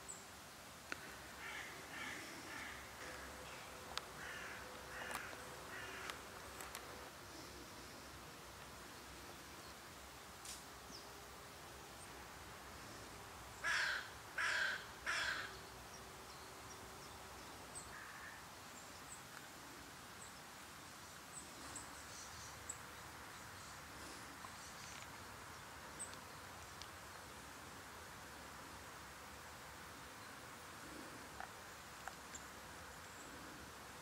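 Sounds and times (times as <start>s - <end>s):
crow cawing: 1.4s - 3.3s, 4.2s - 6.2s, 13.6s - 15.5s, 17.9s - 18.4s
small birds chirping: 15.4s - 27.3s.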